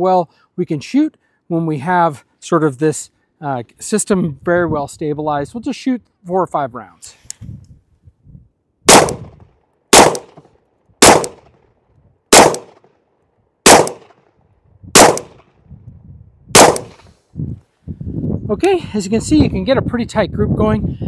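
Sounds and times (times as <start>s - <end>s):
gunshots with echo: 8.9s - 9.3s, 9.9s - 10.4s, 11.0s - 11.4s, 12.3s - 12.8s, 13.7s - 14.1s, 15.0s - 15.4s, 16.6s - 17.0s.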